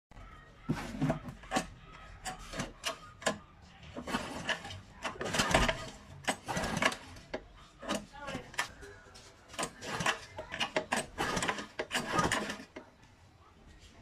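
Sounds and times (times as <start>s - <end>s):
screwdriver scraping screws: 9.5s - 12.8s.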